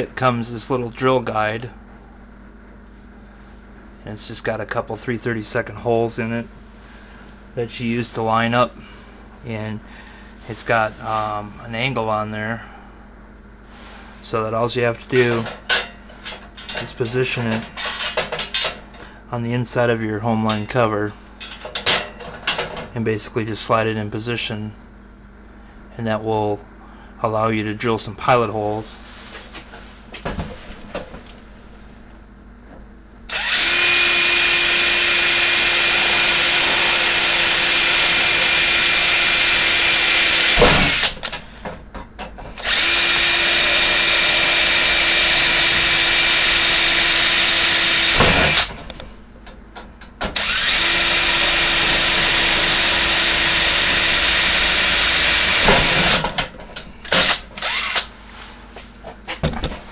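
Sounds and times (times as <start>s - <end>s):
cordless drill drilling metal: 33.3s - 41.3s, 42.6s - 48.7s, 50.4s - 56.3s, 57.1s - 58.1s.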